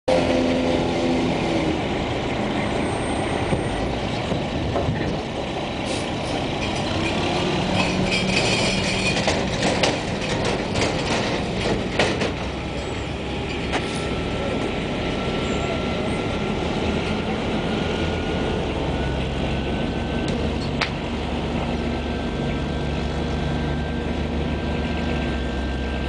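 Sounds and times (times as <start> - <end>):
diesel truck engine running: 0.1 - 26.0
metal dumpster clanking and scraping: 2.8 - 14.2.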